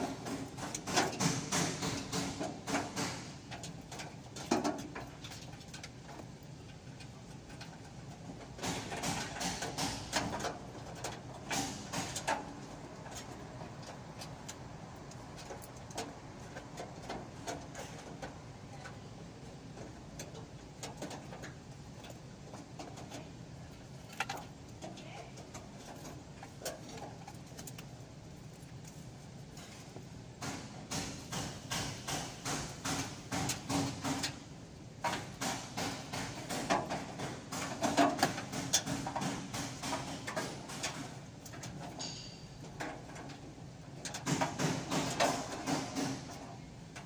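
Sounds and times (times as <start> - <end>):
sharp clicks and knocks: 0.0 - 19.0, 28.8 - 47.0.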